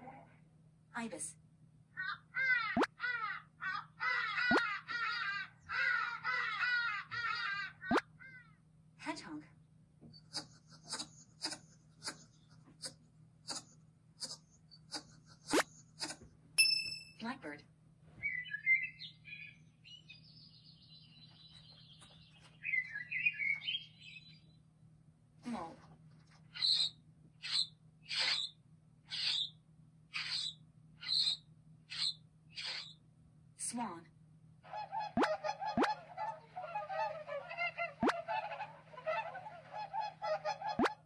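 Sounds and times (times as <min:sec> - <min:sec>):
blackbird singing: 0:18.2 - 0:24.6, 0:26.5 - 0:29.6, 0:30.2 - 0:33.0
swans honking: 0:34.6 - 0:41.0.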